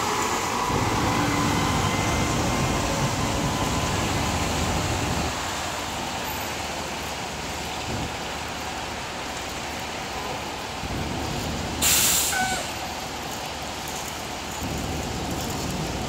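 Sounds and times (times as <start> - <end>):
truck engine rumbling: 0.0 - 16.0
air brakes hissing: 11.8 - 12.8.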